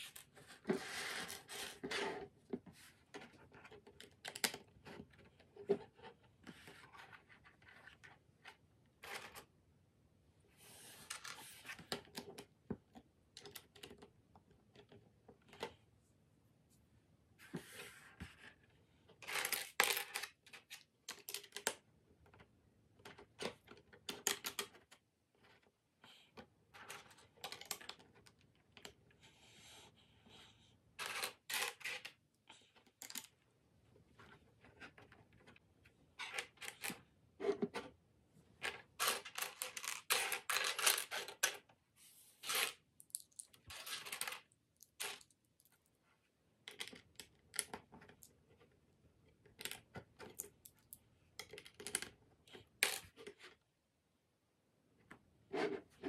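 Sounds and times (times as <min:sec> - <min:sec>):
plastic bricks clattering: 0:38.6 - 0:41.6.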